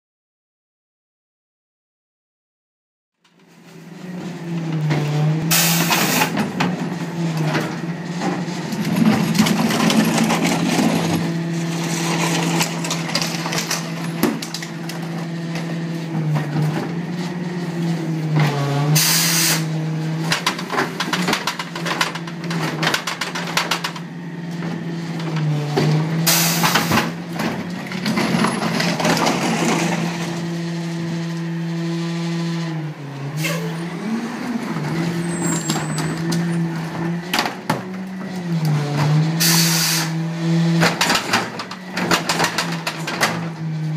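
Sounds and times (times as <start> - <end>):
garbage truck engine running: 3.2 - 43.9
clattering carts: 3.3 - 32.7, 33.4 - 43.9
short sharp hydraulic hiss: 5.5 - 6.3, 19.0 - 19.6, 26.3 - 26.9, 39.4 - 40.1.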